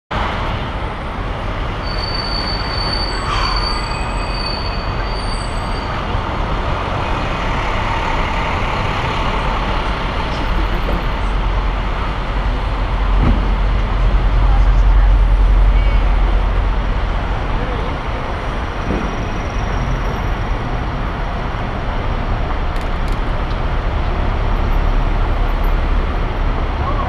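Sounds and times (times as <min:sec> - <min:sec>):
city traffic: 0:00.1 - 0:27.0
thin high squeal: 0:01.8 - 0:06.0.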